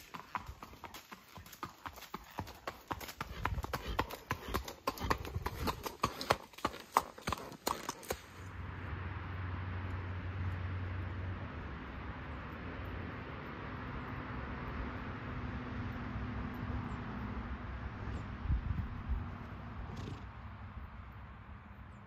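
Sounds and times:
horse hooves on leafy dirt trail: 0.0s - 8.6s.

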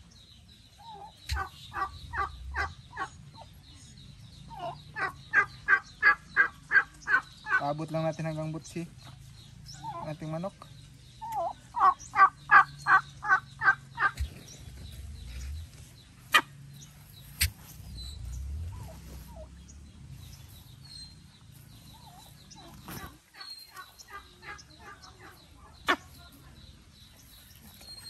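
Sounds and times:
turkey calling: 0.8s - 3.6s, 4.5s - 7.8s, 11.2s - 19.5s, 21.9s - 26.3s.

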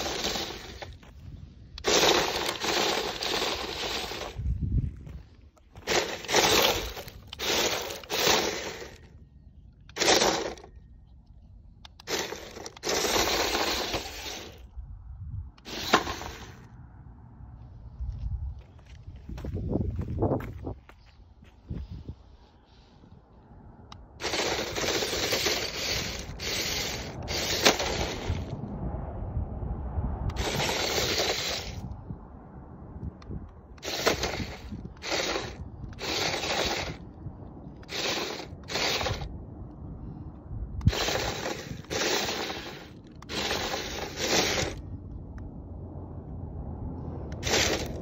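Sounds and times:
toy car electric motor whirring: 0.0s - 1.1s, 1.8s - 4.7s, 5.7s - 9.2s, 9.8s - 10.8s, 11.8s - 14.7s, 15.6s - 16.7s, 23.9s - 28.6s, 30.3s - 32.0s, 33.2s - 37.2s, 37.8s - 39.3s, 40.8s - 44.9s, 47.3s - 48.0s
tyres crunching on dirt: 0.0s - 9.1s, 17.6s - 22.1s.

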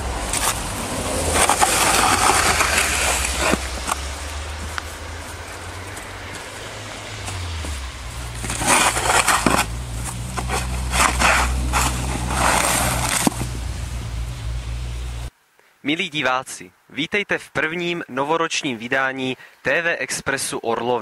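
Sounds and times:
steady low rumble: 0.0s - 15.3s
snow shovel scraping snow on steps: 0.1s - 13.7s.

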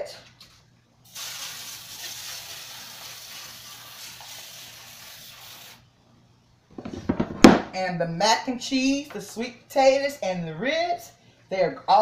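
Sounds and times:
aerosol spray hissing: 1.1s - 5.8s.

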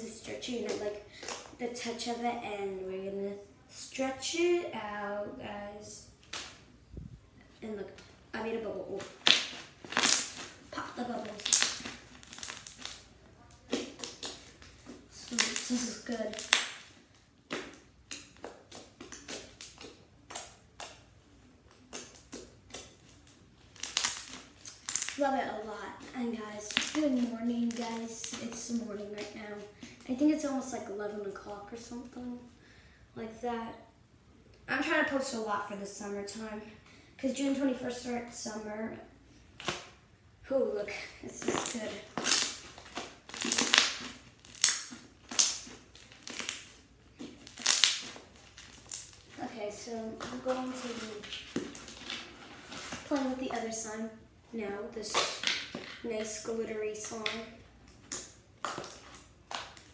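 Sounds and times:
slime squelching: 7.5s - 32.2s, 40.6s - 59.9s.

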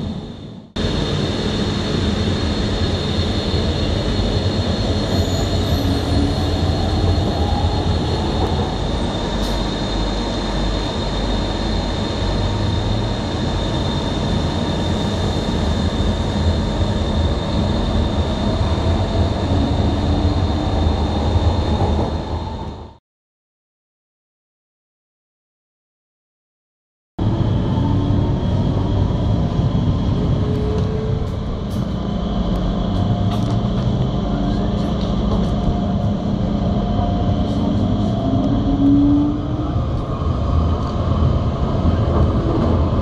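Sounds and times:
constant high whine: 0.0s - 23.0s, 27.2s - 43.0s
train rumble and wheel noise: 0.0s - 23.0s, 27.2s - 43.0s
train motor tone rising: 27.2s - 42.8s.

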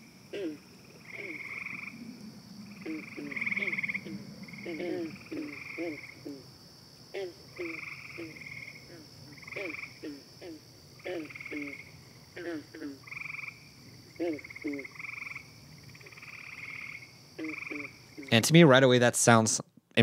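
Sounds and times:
frog trills: 0.0s - 6.5s, 7.1s - 18.4s
frogs croaking: 0.0s - 18.8s
steady high drone: 1.1s - 6.2s.

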